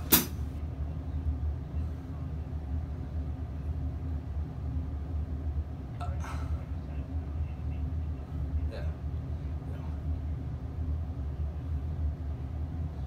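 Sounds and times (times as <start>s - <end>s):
faint hum: 0.0s - 13.0s
steady low rumble: 0.0s - 13.0s.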